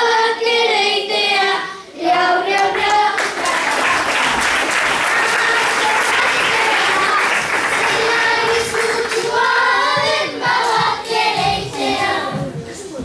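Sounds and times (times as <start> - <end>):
children singing together: 0.0 - 12.9
applause: 2.8 - 9.3.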